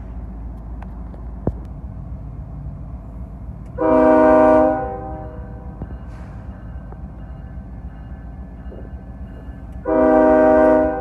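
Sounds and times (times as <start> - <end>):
locomotive air horn blast: 3.8 - 6.4, 9.8 - 11.0.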